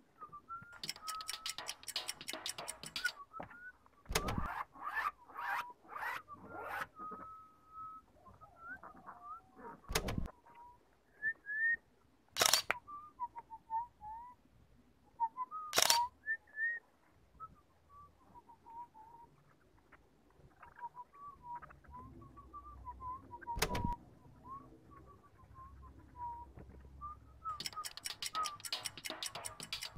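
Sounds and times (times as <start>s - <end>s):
sharp clacks: 0.7s - 3.2s, 27.5s - 29.9s
thin chirping whistle notes: 20.8s - 29.9s.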